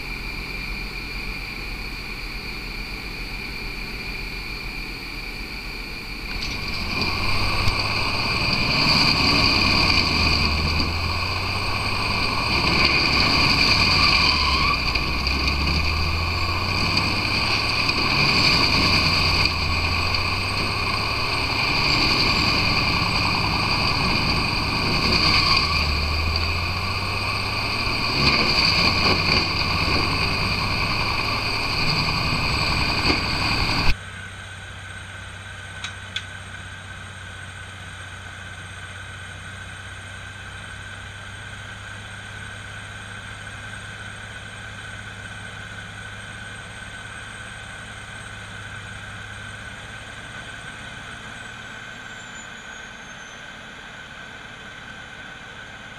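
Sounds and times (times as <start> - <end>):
grinder chipping logs: 6.3 - 34.0.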